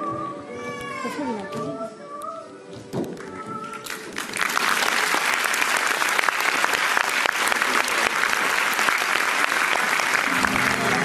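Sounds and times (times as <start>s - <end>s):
audience applause: 3.8s - 11.0s.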